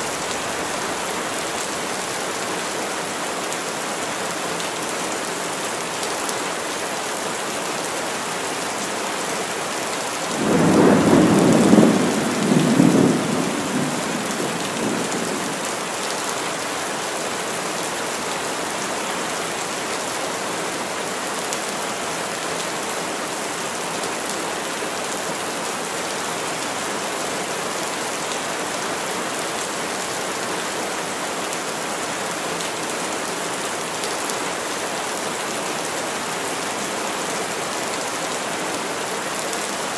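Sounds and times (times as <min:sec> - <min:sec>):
heavy rain on trees: 0:00.0 - 0:39.9
thunder rolling: 0:10.4 - 0:15.4.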